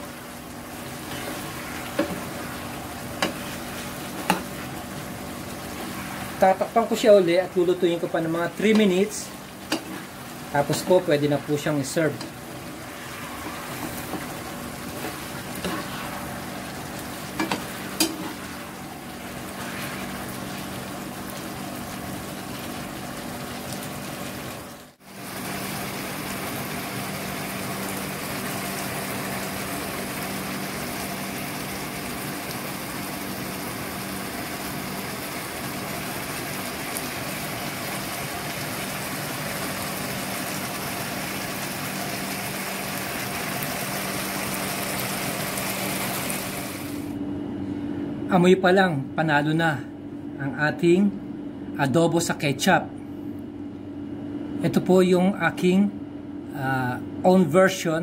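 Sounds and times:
sauce bubbling in a frying pan: 0.0s - 7.1s, 7.8s - 47.0s.

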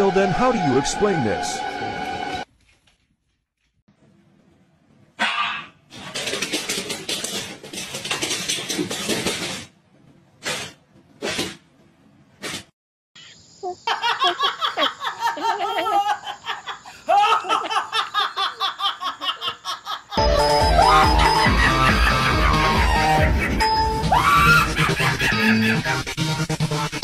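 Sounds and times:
woman laughing: 13.6s - 20.2s, 24.5s - 25.9s.

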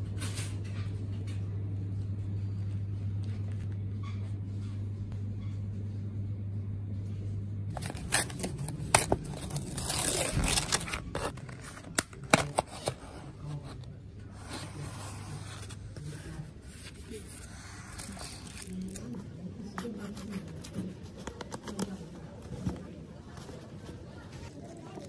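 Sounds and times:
steady low hum: 0.0s - 25.0s
paper rustling and scraping: 7.7s - 19.2s.

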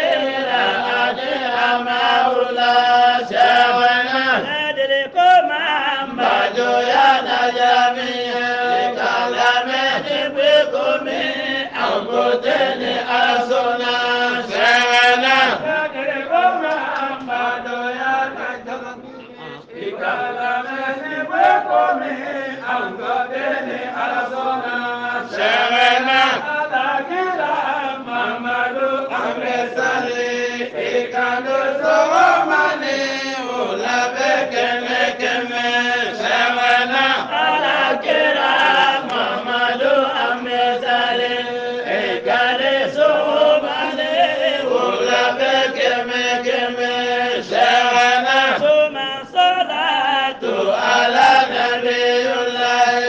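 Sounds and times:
person chanting a devotional poem: 0.0s - 53.0s.

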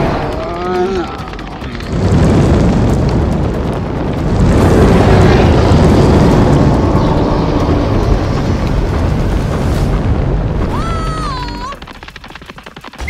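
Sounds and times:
deep rushing of flames: 0.0s - 13.0s.

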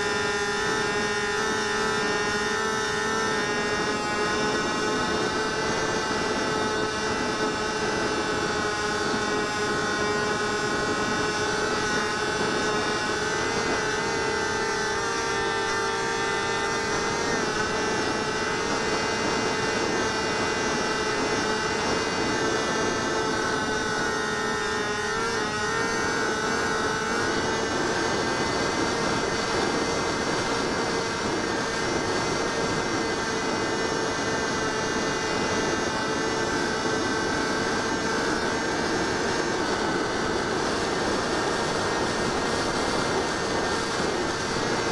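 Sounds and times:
rc plane motor whine: 0.0s - 44.9s.

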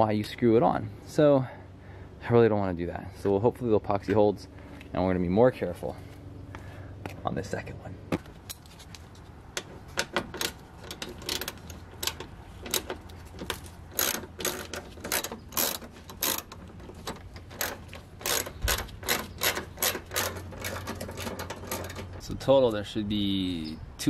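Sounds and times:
hand ratchet clicking: 9.6s - 22.2s.

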